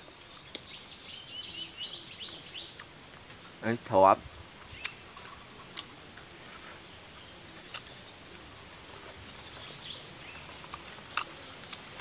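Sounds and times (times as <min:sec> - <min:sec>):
bird chirp: 0:00.0 - 0:02.8, 0:04.6 - 0:05.5, 0:09.2 - 0:11.3
insect hiss: 0:00.0 - 0:12.0
chewing clicks: 0:10.5 - 0:11.9.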